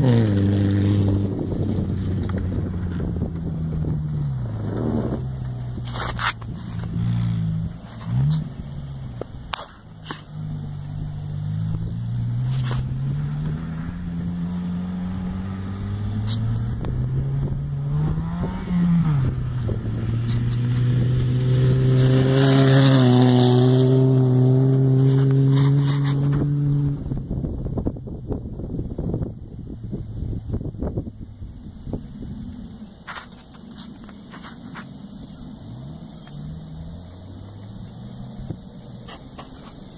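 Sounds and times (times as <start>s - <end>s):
car engine revving hard: 0.0s - 27.3s.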